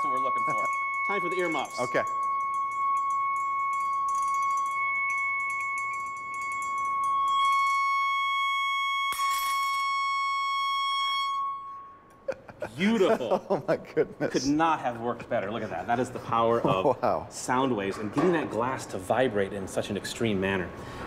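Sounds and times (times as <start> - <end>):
steady high tone from speaker: 0.0 - 13.6.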